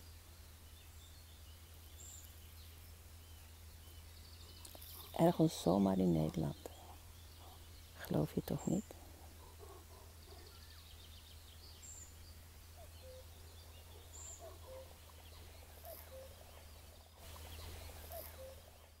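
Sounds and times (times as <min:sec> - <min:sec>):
high chirps of small birds: 0:00.0 - 0:19.0
cuckoo calling: 0:12.7 - 0:19.0.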